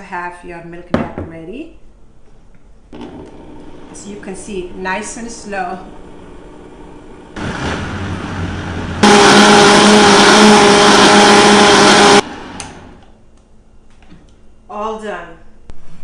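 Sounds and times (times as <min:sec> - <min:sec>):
blender motor whining: 0:05.8 - 0:13.0.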